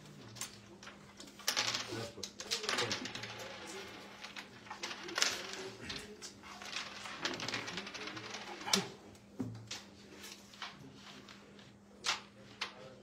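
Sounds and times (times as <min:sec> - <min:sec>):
carrom coins clicking on board: 0:00.1 - 0:09.0.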